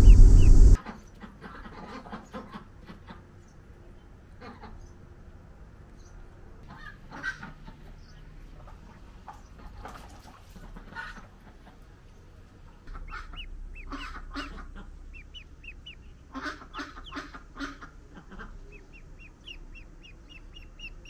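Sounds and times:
ducklings peeping: 0:00.0 - 0:03.2, 0:06.7 - 0:21.0
adult fowl honking: 0:12.9 - 0:21.0.

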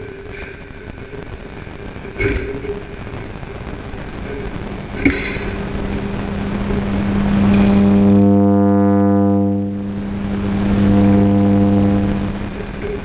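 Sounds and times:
electron beam irradiator hum: 0:00.0 - 0:13.0.

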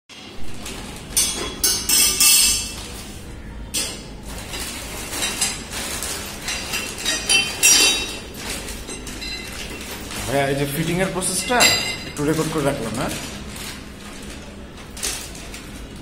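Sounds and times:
plastic bag crinkling: 0:00.2 - 0:01.6, 0:02.7 - 0:16.0
metal parts clinking on tiles: 0:01.2 - 0:03.1, 0:03.7 - 0:10.2.

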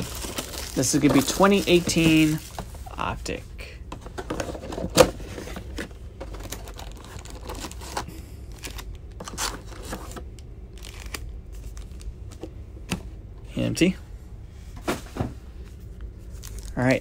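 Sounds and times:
rustling and crinkling of wrappers: 0:00.0 - 0:03.0, 0:04.1 - 0:12.5, 0:15.9 - 0:17.0.

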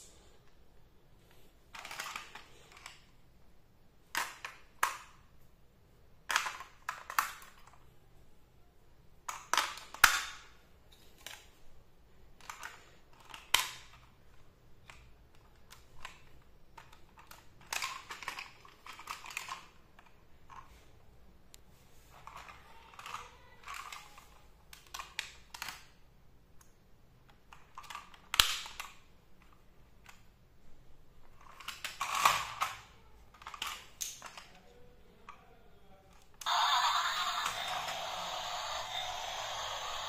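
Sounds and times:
plastic toy clicks and scrapes: 0:01.7 - 0:03.0, 0:14.8 - 0:20.8, 0:22.1 - 0:25.9, 0:36.4 - 0:40.0.

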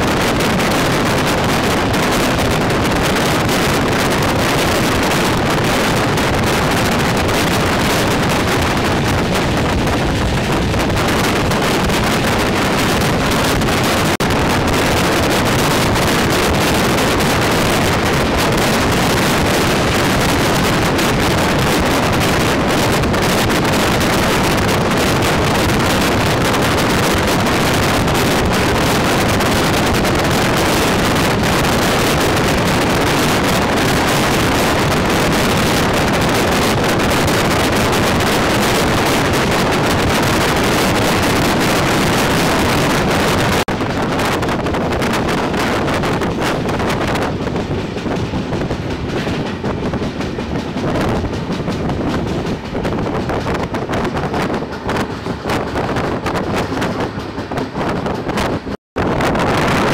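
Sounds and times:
train running noise: 0:00.0 - 0:59.9
wind buffeting microphone: 0:00.0 - 0:59.9
wind rushing: 0:00.0 - 0:59.9.

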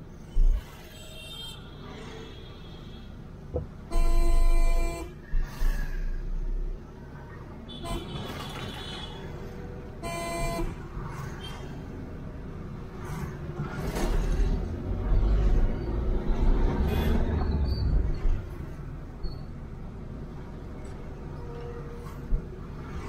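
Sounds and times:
road and engine hum: 0:00.0 - 0:23.0
car horn toot: 0:03.9 - 0:05.2, 0:10.0 - 0:10.7.

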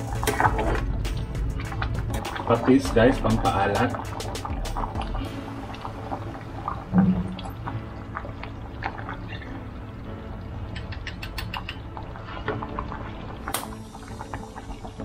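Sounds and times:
liquid clicks and drips: 0:10.6 - 0:15.0.

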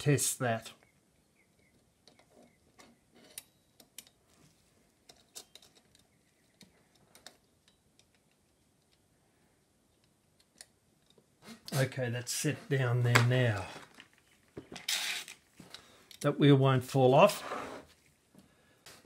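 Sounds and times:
small clicks of clock parts: 0:02.0 - 0:04.2, 0:05.0 - 0:09.0, 0:09.9 - 0:11.2.

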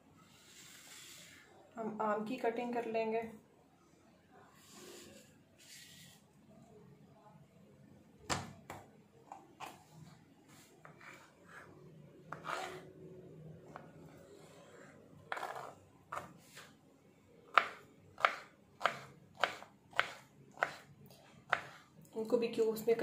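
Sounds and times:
knife scraping: 0:12.3 - 0:12.9, 0:15.3 - 0:16.7
knife chopping on board: 0:17.5 - 0:20.9, 0:21.5 - 0:21.8.

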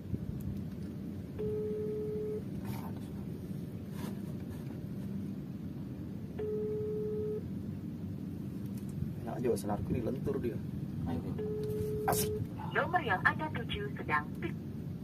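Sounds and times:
steady low rumble: 0:00.0 - 0:15.0
telephone ringback beeps: 0:01.4 - 0:02.4, 0:06.4 - 0:07.4, 0:11.4 - 0:12.4.

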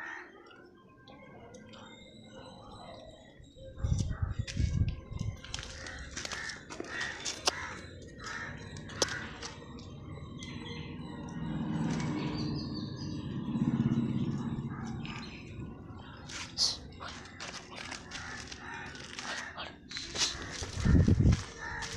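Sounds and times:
crow-like caws: 0:00.0 - 0:00.4, 0:05.6 - 0:09.6, 0:17.1 - 0:21.9
bird calls: 0:05.0 - 0:21.9.

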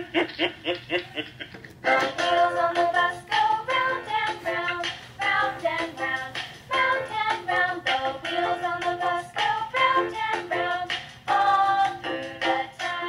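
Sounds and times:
song with singing from small speaker: 0:01.8 - 0:13.0.

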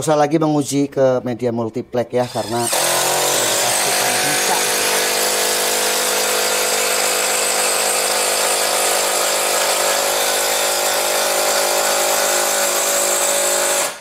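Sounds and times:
impact driver hammering: 0:02.5 - 0:14.0.

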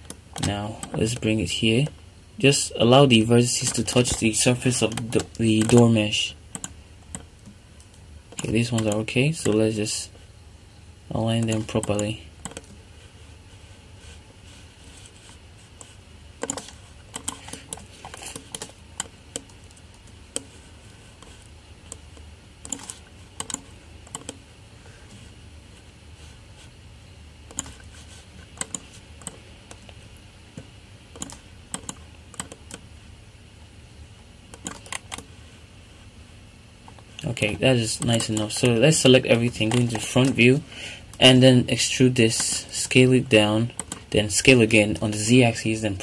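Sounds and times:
steady low hum: 0:00.0 - 0:46.0
keyboard keys clicking: 0:31.2 - 0:32.8, 0:34.5 - 0:35.3.

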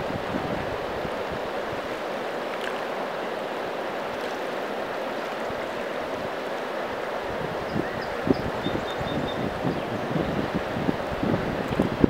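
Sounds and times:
river rushing: 0:00.0 - 0:12.0
wind buffeting microphone: 0:07.2 - 0:12.0.

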